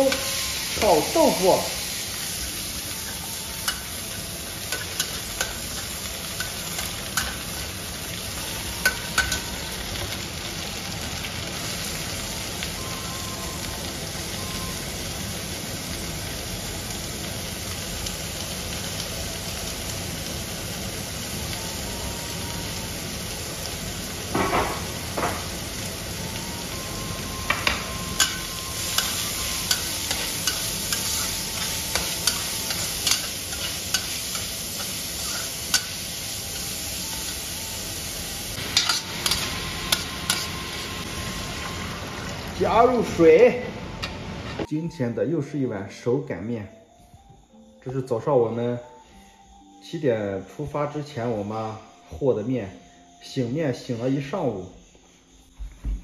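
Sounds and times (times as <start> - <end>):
food sizzling in hot oil: 0.0 - 44.7.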